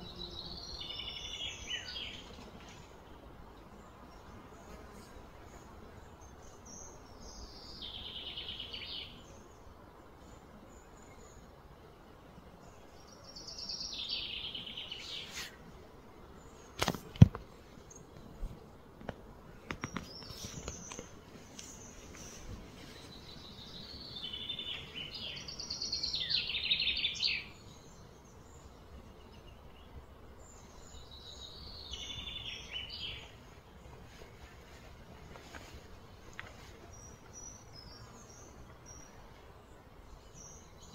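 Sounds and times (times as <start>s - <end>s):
outdoor background noise: 0.0s - 40.9s
small bird chirping: 19.8s - 29.9s.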